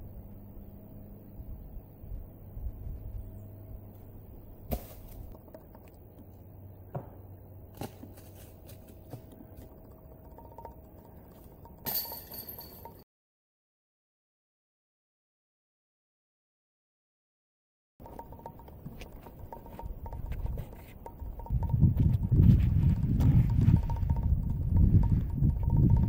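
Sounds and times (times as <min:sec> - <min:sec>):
low outdoor rumble: 0:00.0 - 0:13.0, 0:18.0 - 0:26.0
disc striking metal chains: 0:11.5 - 0:13.0.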